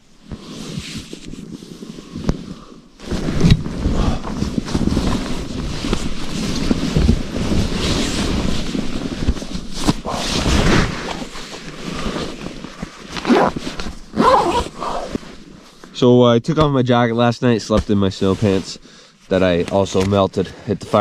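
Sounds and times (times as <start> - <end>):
sleeping bag and clothing rustling: 0.0 - 16.0.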